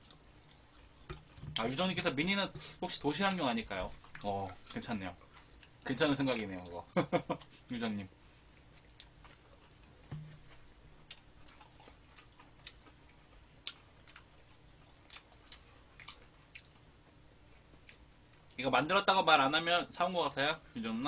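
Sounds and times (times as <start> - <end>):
chewing crisp fried chicken: 0.0 - 1.7, 3.7 - 7.8, 8.4 - 18.6.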